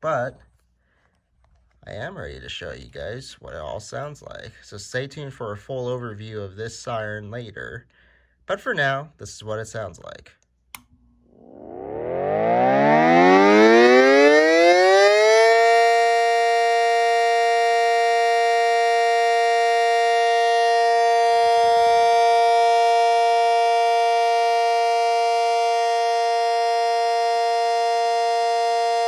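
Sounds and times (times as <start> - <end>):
electric siren wailing: 11.3 - 29.0.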